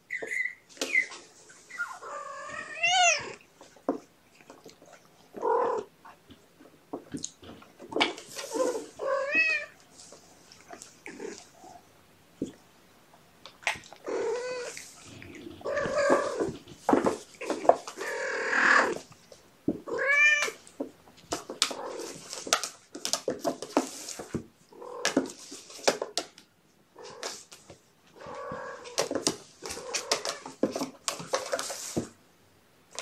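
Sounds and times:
cats meowing: 0:00.1 - 0:03.4, 0:05.4 - 0:05.9, 0:08.4 - 0:09.8, 0:14.0 - 0:16.7, 0:19.9 - 0:20.6, 0:28.2 - 0:30.6
kittens scratching on plastic slide: 0:07.5 - 0:11.5, 0:14.4 - 0:18.2, 0:21.3 - 0:24.4, 0:25.0 - 0:26.2, 0:27.1 - 0:32.2.

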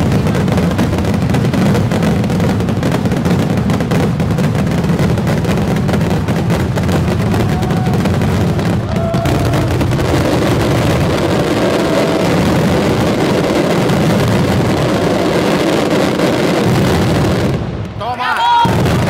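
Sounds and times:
fireworks bangs and crackling: 0:00.0 - 0:19.0
firework whistles: 0:06.5 - 0:16.0.

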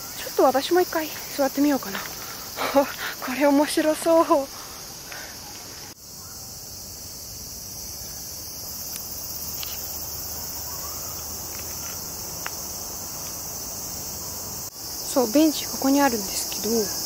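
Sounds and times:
cicadas buzzing: 0:00.0 - 0:17.0.

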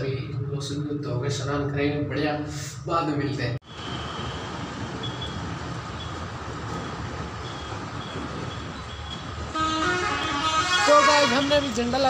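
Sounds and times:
street traffic noise: 0:03.6 - 0:12.0
faint car horn toots: 0:09.5 - 0:11.6.

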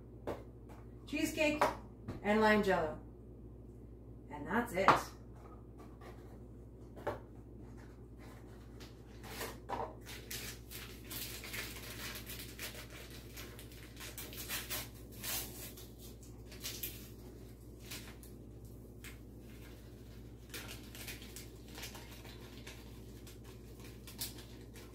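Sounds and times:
paper packet crackling: 0:10.0 - 0:24.9.

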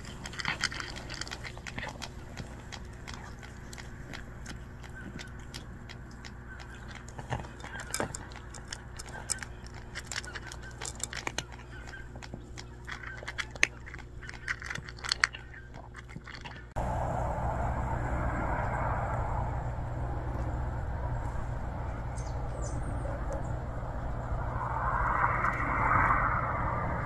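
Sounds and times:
cat crunching dry kibble: 0:00.0 - 0:16.8
loud steady noise: 0:16.8 - 0:27.0.

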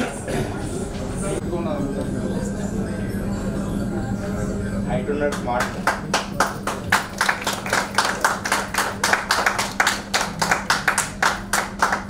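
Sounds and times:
steady low hum: 0:00.0 - 0:12.0
group of people clapping: 0:05.3 - 0:12.0.

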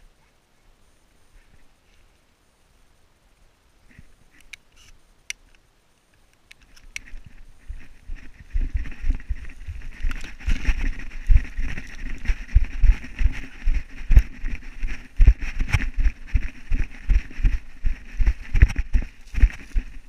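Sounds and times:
rustle of dry scrub: 0:06.7 - 0:20.0
heavy footsteps: 0:07.2 - 0:20.0.

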